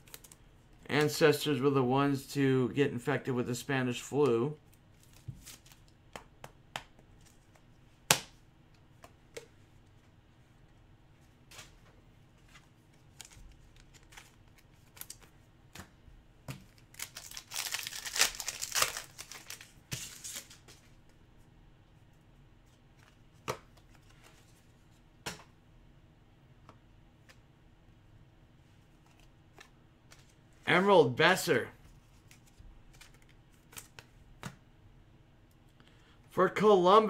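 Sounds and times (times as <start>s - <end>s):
wrapper torn open crinkling: 16.7s - 20.6s.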